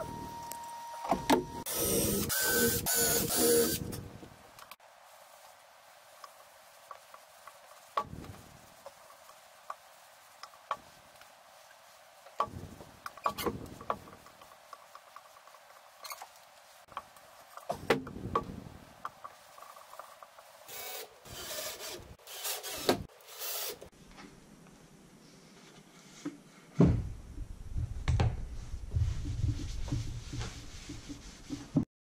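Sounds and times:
cordless drill bursts: 0:01.7 - 0:03.8
cloth rubbing over wood: 0:28.9 - 0:31.8.

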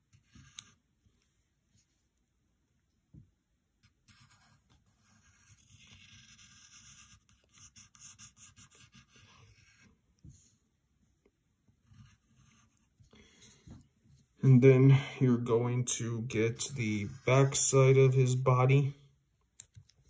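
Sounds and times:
pencil scratching on paper: 0:00.0 - 0:00.8, 0:03.8 - 0:10.4, 0:11.8 - 0:14.6, 0:16.1 - 0:18.5.

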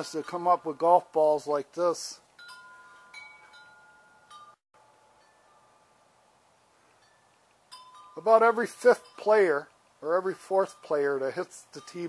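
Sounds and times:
chimes ringing: 0:00.0 - 0:01.2, 0:02.4 - 0:06.1, 0:07.0 - 0:09.7, 0:10.4 - 0:12.0.

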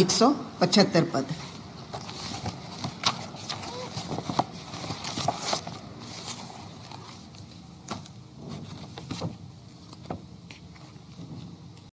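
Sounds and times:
paper rustling: 0:01.4 - 0:11.3.

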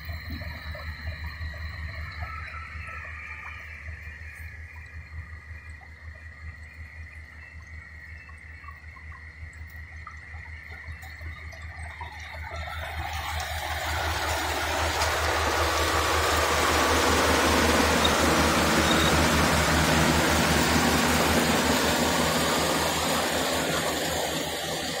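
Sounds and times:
combine harvester running: 0:11.3 - 0:25.0.

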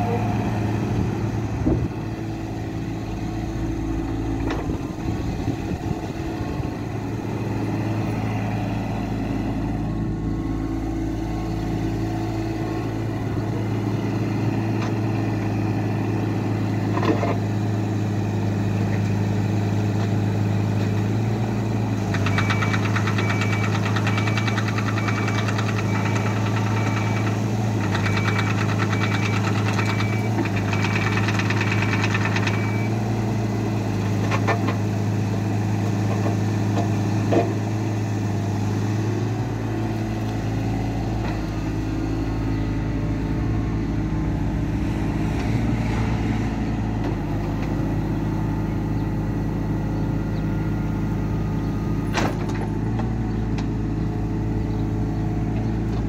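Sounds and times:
diesel engine running: 0:00.0 - 0:56.0
excavator bucket clunks: 0:52.1 - 0:53.7.

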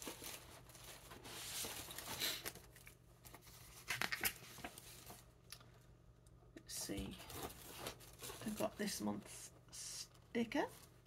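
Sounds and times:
paper and packaging rustling: 0:00.0 - 0:05.4, 0:06.7 - 0:09.5.

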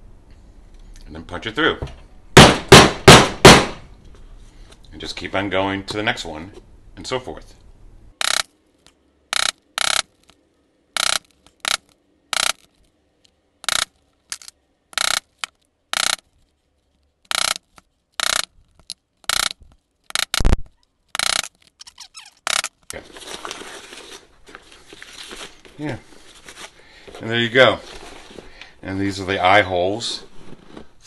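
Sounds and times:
mallet striking metal punch: 0:02.4 - 0:03.8.

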